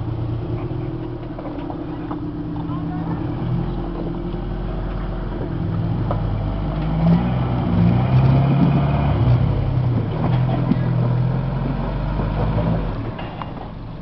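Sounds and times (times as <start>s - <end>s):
off-road vehicle engine: 0.0s - 14.0s.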